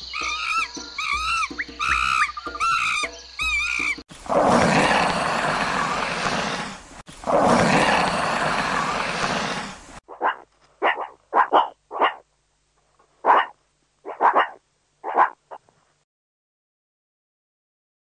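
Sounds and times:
meerkat barking calls: 0:00.1 - 0:04.0, 0:10.1 - 0:12.3, 0:13.2 - 0:15.7
lizard hissing: 0:03.7 - 0:11.1.

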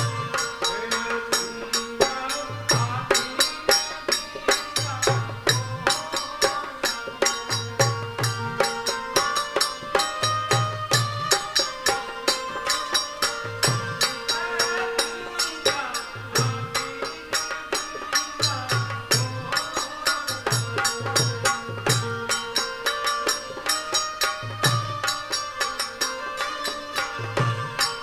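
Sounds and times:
fast percussion beat: 0:20.4 - 0:25.8.

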